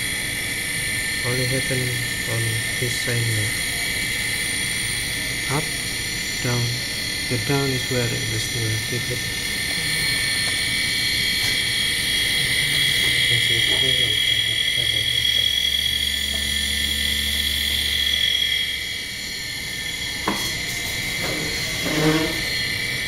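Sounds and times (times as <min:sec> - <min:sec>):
high-pitched motor whine: 0:00.0 - 0:23.0
low hum: 0:00.0 - 0:23.0.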